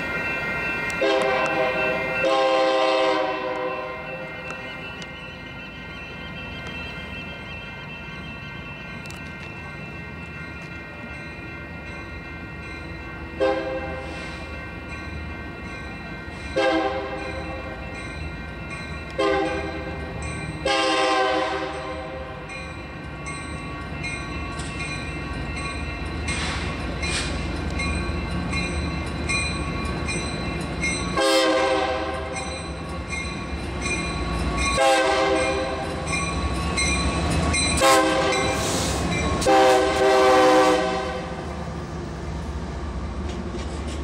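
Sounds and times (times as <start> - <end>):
locomotive bell ringing: 0.0 - 44.0
locomotive horn blasts: 1.0 - 4.2, 13.4 - 14.2, 16.6 - 17.2, 19.1 - 19.8, 20.6 - 22.2, 31.2 - 32.3, 34.8 - 35.8, 37.8 - 38.7, 39.4 - 41.4.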